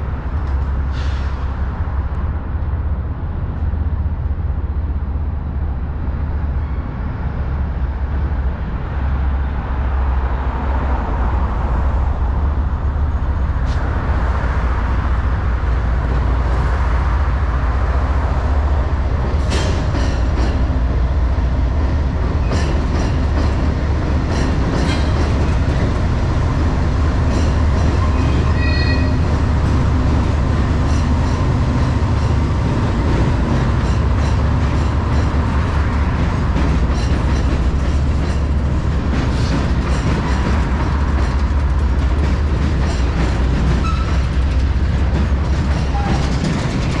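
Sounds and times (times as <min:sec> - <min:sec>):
freight train rumbling on trestle: 0:00.0 - 0:47.0
high squeal: 0:28.0 - 0:29.3
train wheel clicks: 0:33.1 - 0:47.0.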